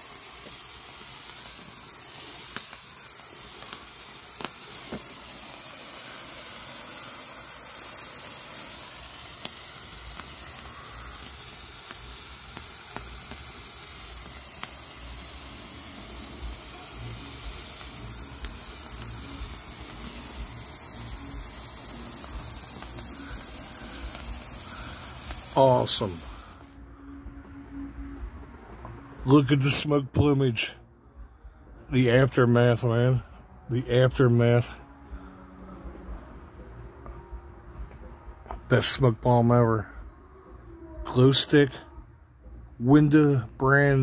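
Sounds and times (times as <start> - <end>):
sparkler crackles: 0.0 - 26.8
sparkler fizzing: 0.0 - 26.8.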